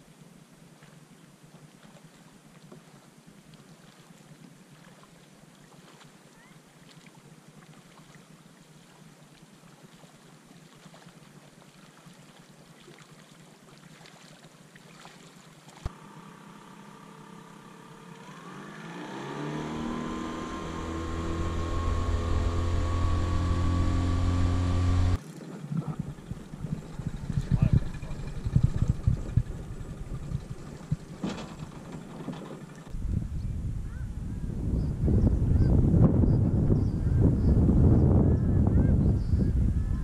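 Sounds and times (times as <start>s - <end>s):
motorboat engine: 15.8s - 33.0s.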